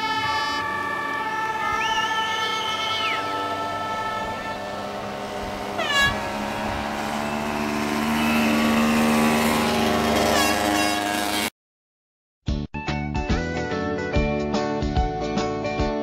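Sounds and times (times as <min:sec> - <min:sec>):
motorcycle engines revving: 0:00.0 - 0:11.5.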